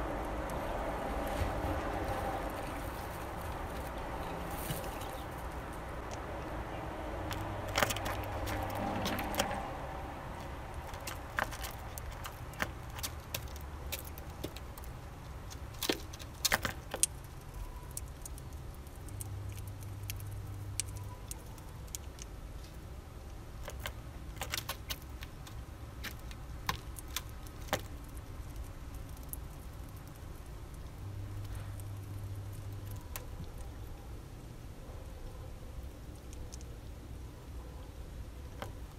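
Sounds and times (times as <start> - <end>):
beak clicking on seeds: 10.4 - 22.8, 23.6 - 34.0.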